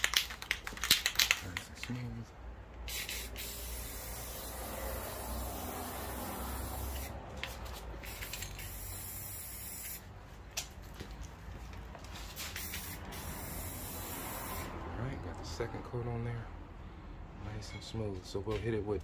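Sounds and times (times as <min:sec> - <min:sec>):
spray can hissing: 0:02.8 - 0:10.1, 0:12.3 - 0:14.7.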